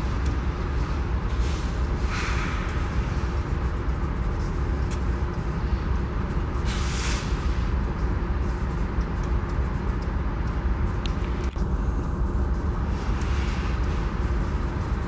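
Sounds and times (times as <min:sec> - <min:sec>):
diesel locomotives rumbling: 0:00.0 - 0:15.0
air hiss: 0:01.4 - 0:02.8, 0:06.7 - 0:07.7.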